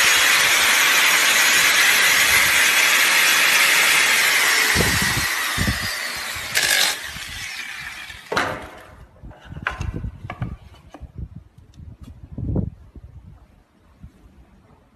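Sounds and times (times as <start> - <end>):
miter saw winding down: 0.0 - 8.3
loud thump: 8.3 - 8.9.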